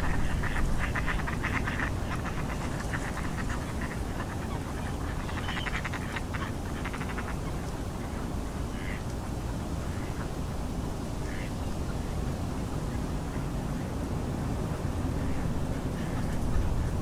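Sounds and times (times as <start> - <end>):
ducks quacking: 0.0 - 9.0, 9.8 - 10.3, 11.2 - 11.5, 15.2 - 17.0
low rumble of wind: 0.0 - 17.0.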